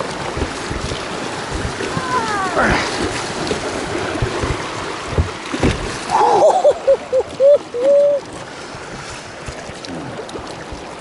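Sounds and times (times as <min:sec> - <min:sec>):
river water rushing: 0:00.0 - 0:11.0
knocks on boat: 0:00.1 - 0:06.1.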